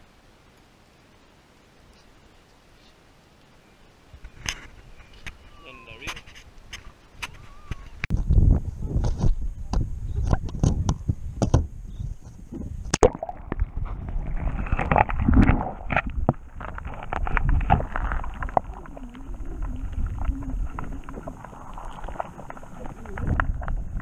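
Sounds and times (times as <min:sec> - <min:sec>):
muffled underwater gurgling: 0:12.9 - 0:24.0.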